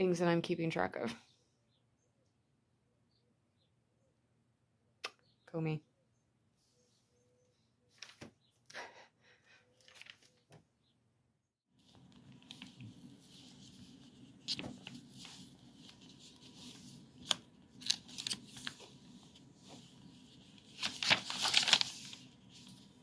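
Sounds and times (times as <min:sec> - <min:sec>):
paper pages rustling: 0:09.8 - 0:10.6, 0:11.8 - 0:23.0.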